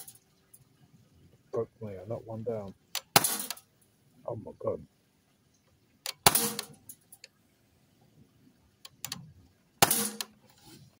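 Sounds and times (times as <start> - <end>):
air rifle shots: 3.0 - 3.6, 6.1 - 6.8, 9.8 - 10.3.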